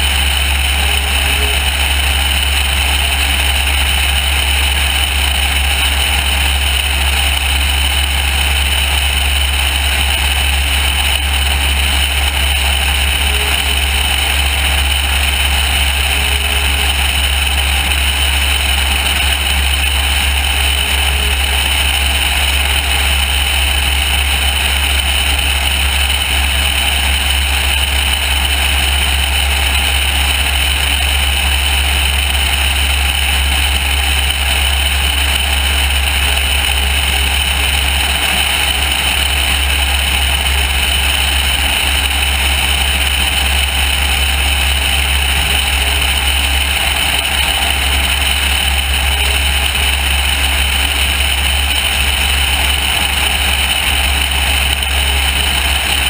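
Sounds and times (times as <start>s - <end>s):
airplane engine drone: 0.0s - 56.0s.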